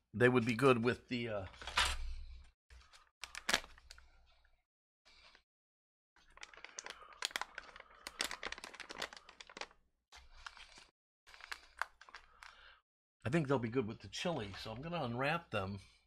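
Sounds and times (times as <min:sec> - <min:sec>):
plastic packaging crinkling: 0:03.2 - 0:04.1, 0:06.2 - 0:12.7.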